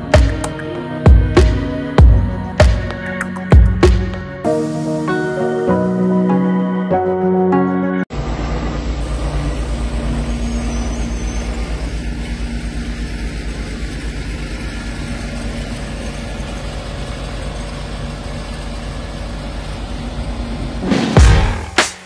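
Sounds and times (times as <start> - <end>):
diesel truck engine idling: 8.2 - 21.8.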